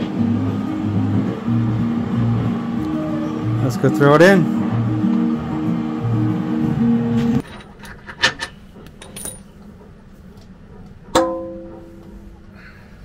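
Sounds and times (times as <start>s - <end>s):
guitar music: 0.0s - 7.4s
steel plate clanging: 11.1s - 12.2s.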